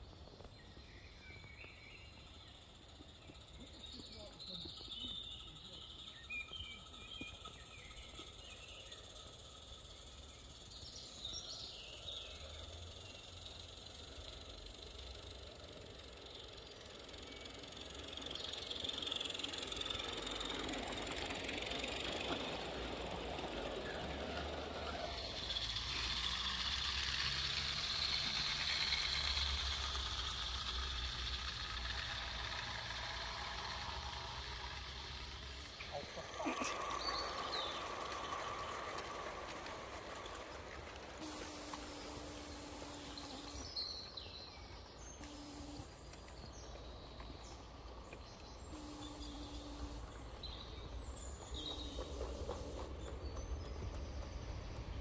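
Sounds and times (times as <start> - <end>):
birds singing: 0.0 - 14.0, 35.1 - 39.0, 42.1 - 55.0
low outdoor rumble: 0.0 - 55.0
wagon wheels rattling on track: 0.0 - 55.0
steam locomotive hissing: 12.5 - 43.8, 48.6 - 55.0.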